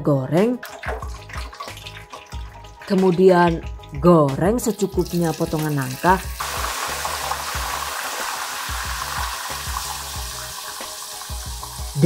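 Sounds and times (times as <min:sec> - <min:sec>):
background music: 0:00.0 - 0:12.0
food deep-frying in oil: 0:04.6 - 0:12.0.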